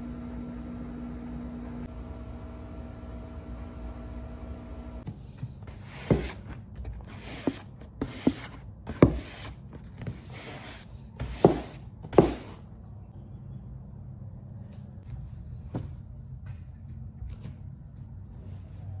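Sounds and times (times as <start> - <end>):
broom sweeping wooden floor: 5.1 - 12.6.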